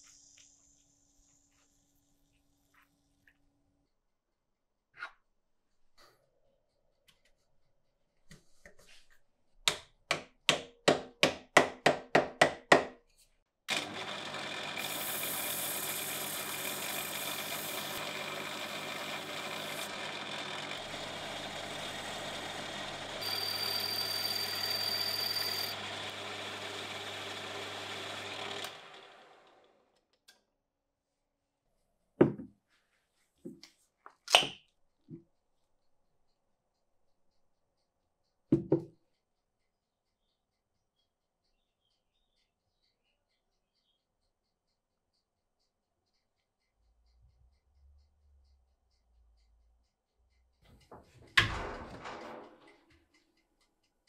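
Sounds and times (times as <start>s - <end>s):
lathe motor hum: 13.7s - 29.9s.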